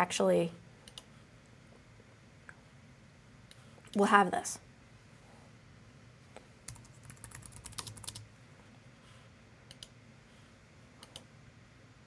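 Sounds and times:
typing on computer keyboard: 6.7s - 8.2s, 11.0s - 11.3s.

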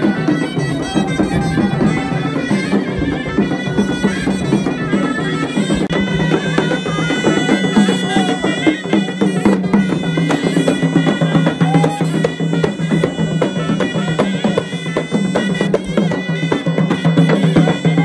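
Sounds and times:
drum strokes: 0.0s - 18.0s
shawms playing reedy melody: 0.0s - 18.0s.

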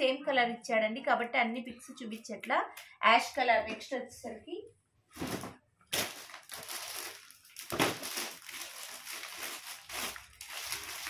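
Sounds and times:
plastic cover crinkling: 5.2s - 11.0s.

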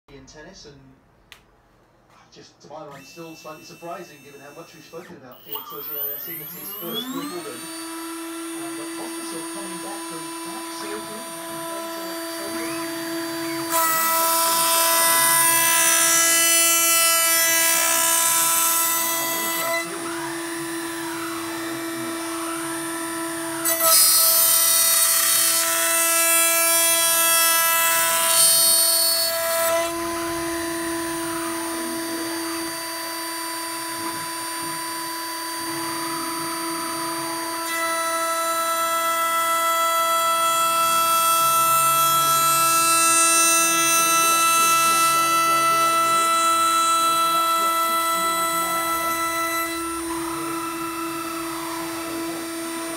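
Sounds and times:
tone sweeping up and down: 2.9s - 14.0s
router spindle motor whining: 2.9s - 52.9s.

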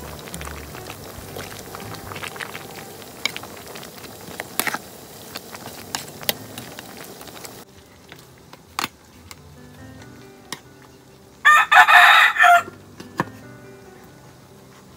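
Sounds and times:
soup bubbling with pops: 0.0s - 9.4s.

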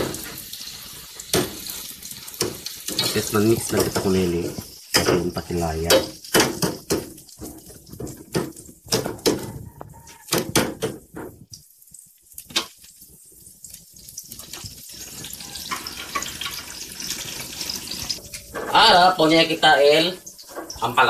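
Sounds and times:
oil sizzling: 0.0s - 21.0s
metal ladle scraping a pan: 14.5s - 19.0s.

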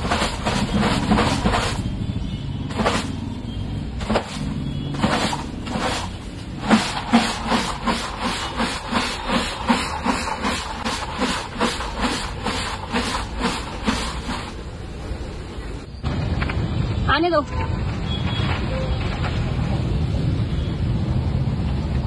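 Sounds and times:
tub being shaken rhythmically: 0.0s - 1.8s, 4.9s - 14.6s.

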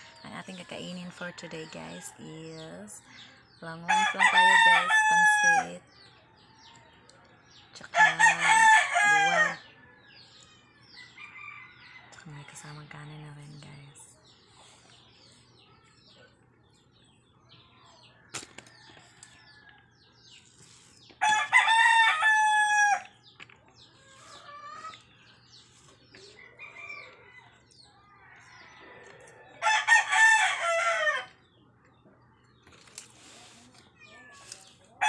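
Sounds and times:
rooster crowing: 3.9s - 5.8s, 8.0s - 9.7s, 21.2s - 23.1s, 28.3s - 31.3s.

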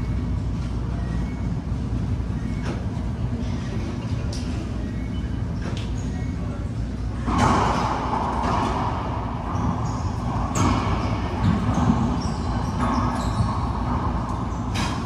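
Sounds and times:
racquetball hitting racquets and walls: 7.2s - 15.0s.

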